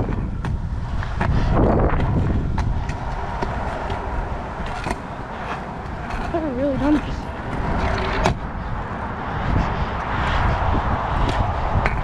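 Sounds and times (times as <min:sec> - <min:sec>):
wheels clicking over joints: 0:00.0 - 0:08.9
scooter wheels rolling on concrete: 0:00.0 - 0:12.0
wind buffeting microphone: 0:00.0 - 0:12.0.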